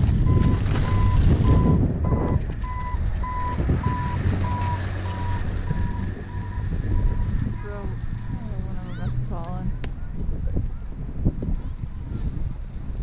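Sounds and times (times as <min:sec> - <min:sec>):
reversing alarm beeping: 0:00.2 - 0:08.5.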